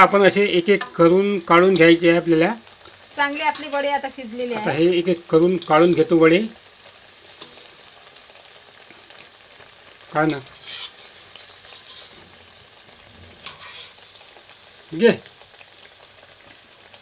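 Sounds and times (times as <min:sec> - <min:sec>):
food sizzling in hot oil: 0:00.0 - 0:17.0
skimmer scraping a pan: 0:10.3 - 0:15.0.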